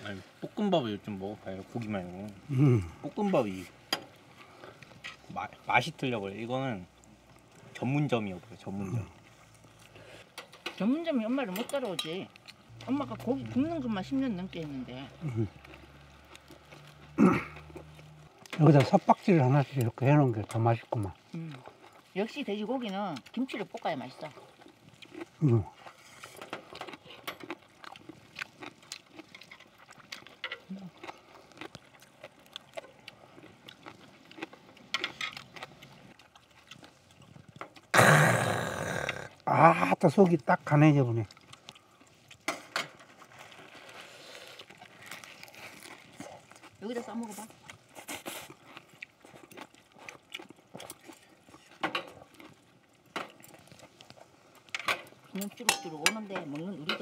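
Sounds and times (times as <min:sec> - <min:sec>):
eating sounds: 0:00.0 - 0:55.7
chopsticks and tongs clicking on grill: 0:10.3 - 0:13.3, 0:54.6 - 0:57.0.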